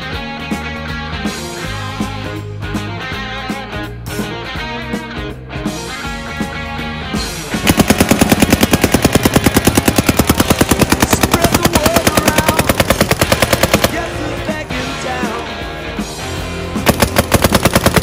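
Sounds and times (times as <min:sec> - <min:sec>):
rock music with guitar: 0:00.0 - 0:18.0
paintball marker rapid fire: 0:07.6 - 0:14.2, 0:16.8 - 0:18.0.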